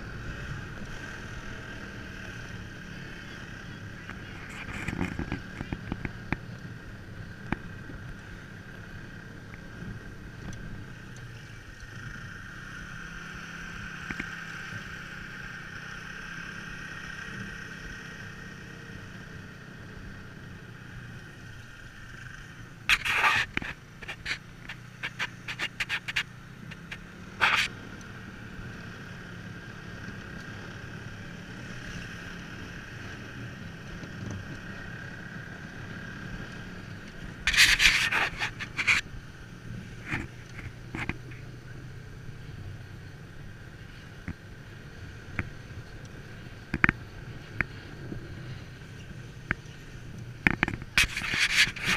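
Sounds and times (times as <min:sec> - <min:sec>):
sled runners scraping on snow: 0:22.9 - 0:27.7, 0:37.3 - 0:39.1, 0:50.6 - 0:51.9.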